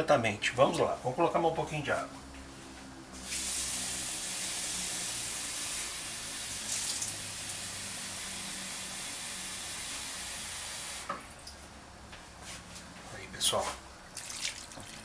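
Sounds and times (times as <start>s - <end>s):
water pouring into a pan: 6.6s - 7.6s, 14.2s - 15.0s.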